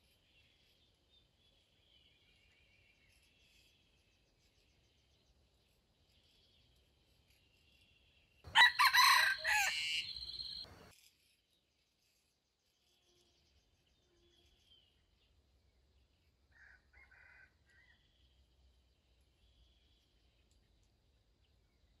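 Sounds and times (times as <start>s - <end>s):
rooster crowing: 8.5s - 10.8s
faint insect chirping: 8.5s - 10.9s.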